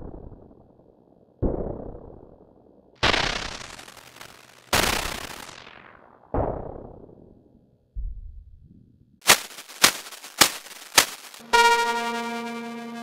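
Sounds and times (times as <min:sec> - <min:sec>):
synthesizer noise bursts: 0:09.3 - 0:13.0.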